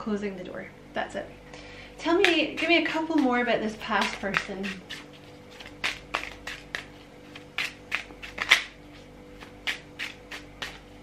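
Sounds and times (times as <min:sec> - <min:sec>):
faint steady hum: 0:00.0 - 0:11.0
cards being shuffled: 0:04.0 - 0:10.9.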